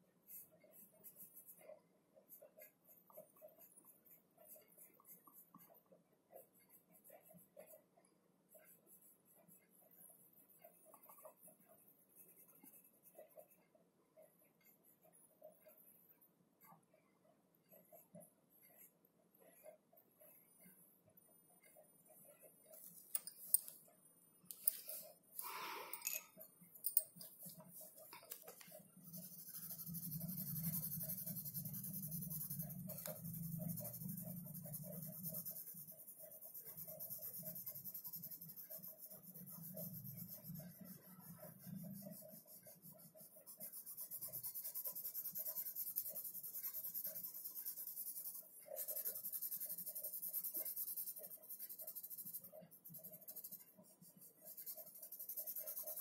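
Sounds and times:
pencil shading on paper: 0.0 - 23.9, 24.5 - 25.8, 26.4 - 56.0.

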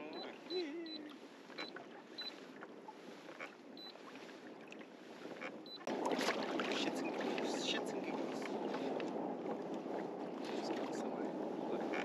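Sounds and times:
water washing around kayak: 0.0 - 12.0.

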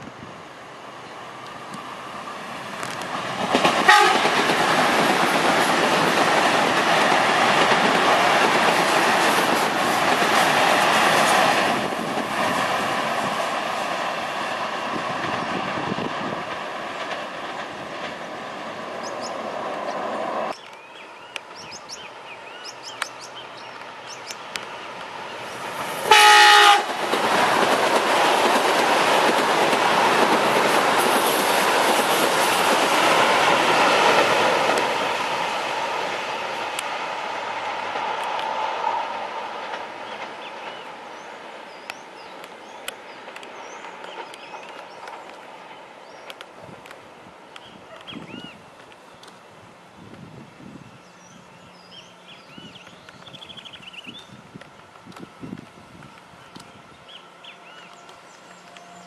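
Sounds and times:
trains passing over rail joints: 0.0 - 59.0
train horn blast: 3.9 - 4.4, 26.1 - 27.0.

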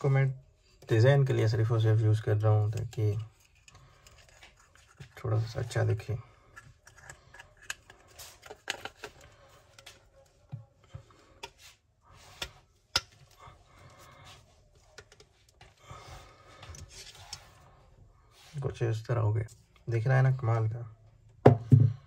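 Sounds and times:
plastic pipe fittings clicking: 6.5 - 10.0.

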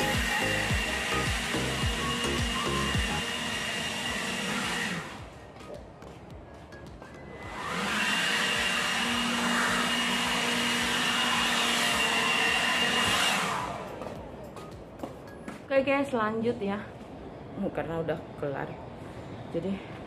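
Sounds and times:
leaf blower whining: 0.0 - 5.4, 7.4 - 14.2.

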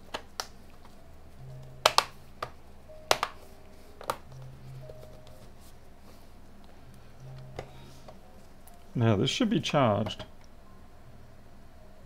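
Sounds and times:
plastic case clips snapping: 1.8 - 3.4.

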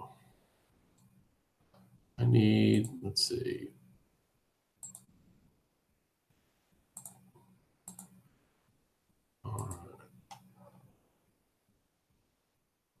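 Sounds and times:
computer mouse clicks: 4.8 - 5.2, 7.0 - 8.2, 9.5 - 10.8.

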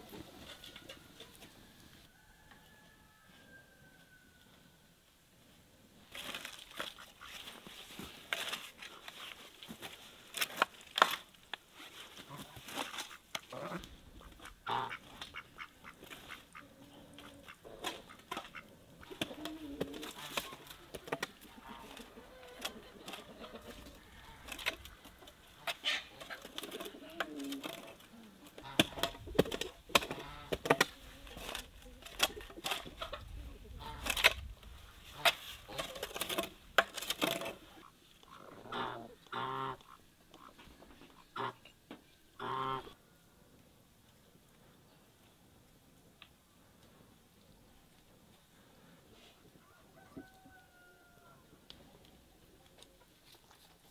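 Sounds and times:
poultry calling: 12.2 - 29.0, 37.7 - 41.7, 42.4 - 43.0.

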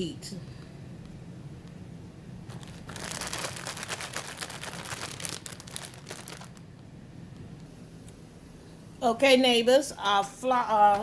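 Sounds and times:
plastic bag crinkling: 2.5 - 6.8.

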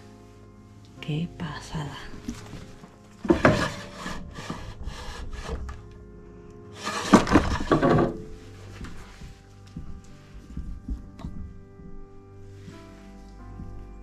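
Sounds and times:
wooden drawer scraping: 2.3 - 5.9, 6.7 - 8.4.

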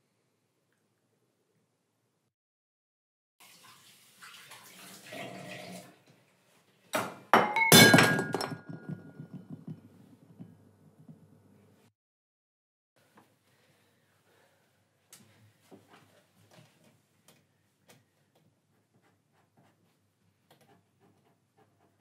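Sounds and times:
water and dishes at sink: 3.4 - 6.2
plates smashing on floor: 7.0 - 9.8
shards clattering: 7.4 - 9.4.

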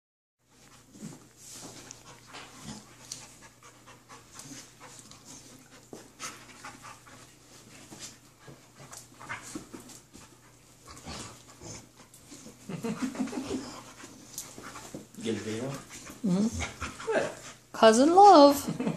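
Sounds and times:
dogs panting: 0.5 - 18.5.

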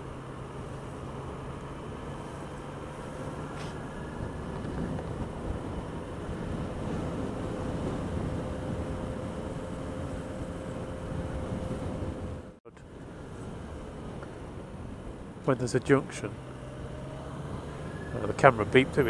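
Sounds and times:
wind noise: 3.5 - 12.5.

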